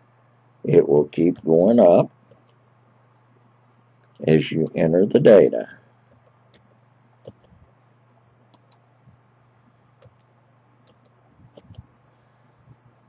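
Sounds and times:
low steady hum: 0.0 - 13.0
keyboard and mouse clicks: 6.1 - 7.6, 8.5 - 8.8, 10.0 - 11.8.

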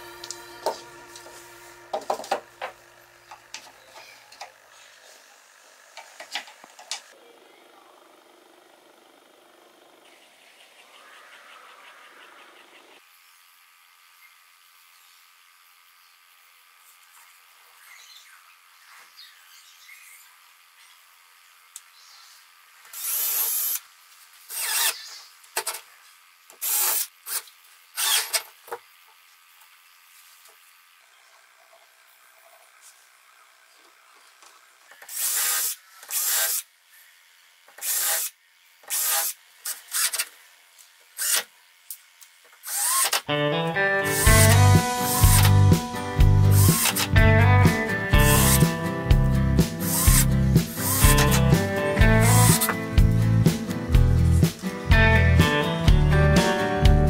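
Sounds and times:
cordless drill running: 22.8 - 23.9, 24.5 - 25.1, 26.5 - 28.4, 35.0 - 43.3, 44.0 - 53.6.

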